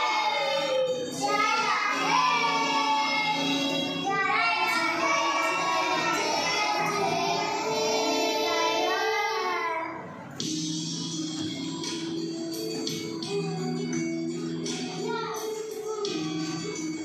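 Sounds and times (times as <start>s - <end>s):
children singing: 0.0s - 10.2s
instrumental backing music: 0.0s - 17.0s.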